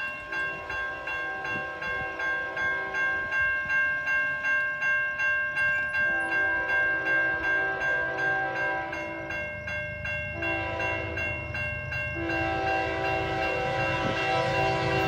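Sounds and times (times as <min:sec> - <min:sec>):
crossing warning bell ringing: 0:00.0 - 0:15.0
train horn: 0:00.6 - 0:03.5, 0:06.0 - 0:09.5, 0:10.3 - 0:15.0.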